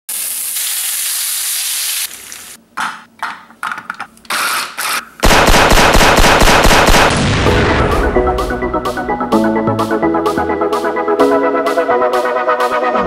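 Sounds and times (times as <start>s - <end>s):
bacon sizzling in a frying pan: 0.1s - 2.6s.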